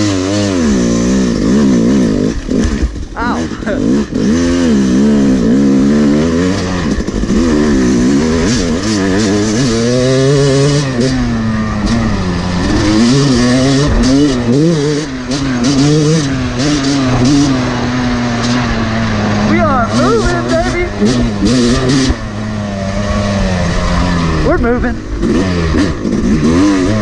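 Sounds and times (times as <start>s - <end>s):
two-stroke dirt bike engine revving: 0.0s - 27.0s.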